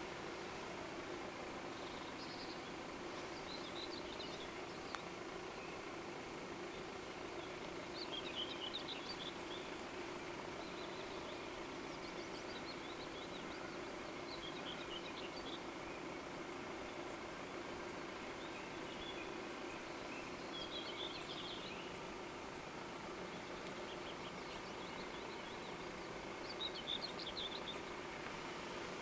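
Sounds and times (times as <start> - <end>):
faint steady hum: 0.0 - 29.0
small birds twittering: 0.0 - 29.0.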